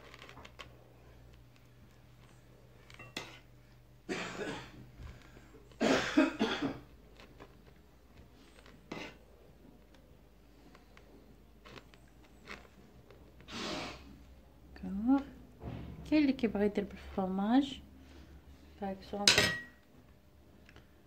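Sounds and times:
person coughing: 0:04.1 - 0:04.8, 0:05.8 - 0:06.8.

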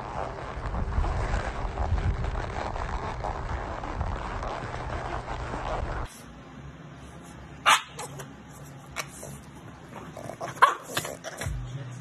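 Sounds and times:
rushing outdoor noise: 0:00.0 - 0:06.1
small dog barking: 0:07.6 - 0:08.2, 0:10.5 - 0:11.2.

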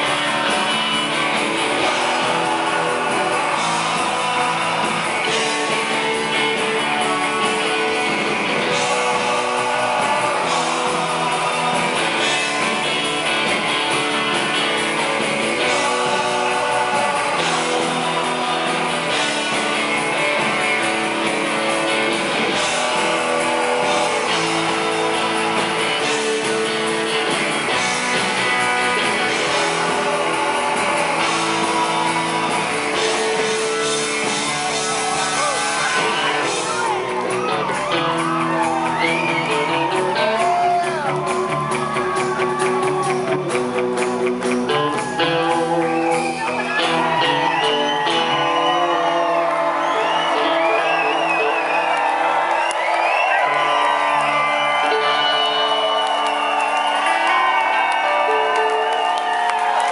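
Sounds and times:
lead singer vocals: 0:00.0 - 0:43.5
live rock band playing: 0:00.0 - 0:59.9.

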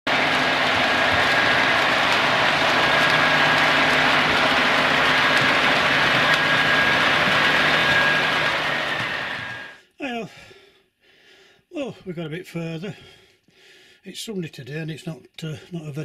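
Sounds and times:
engine running with low hum: 0:00.1 - 0:09.8
high whine: 0:00.1 - 0:09.8.

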